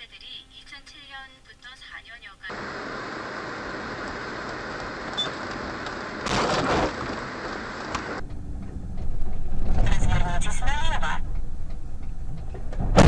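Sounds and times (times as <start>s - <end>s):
car road and engine noise: 2.5s - 13.0s
deep rumbling noise: 5.5s - 13.0s.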